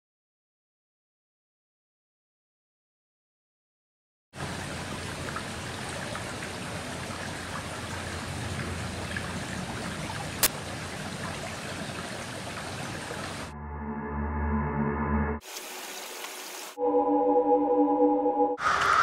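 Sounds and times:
water hissing: 15.4 - 16.8.

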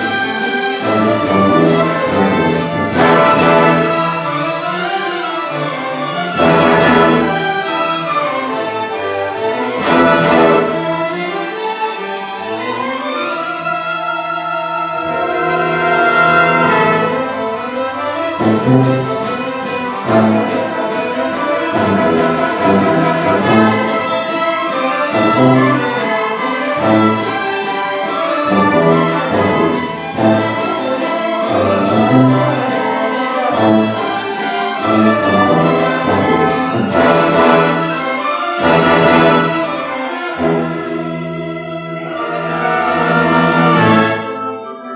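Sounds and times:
orchestra playing fast piece: 0.0 - 44.9.

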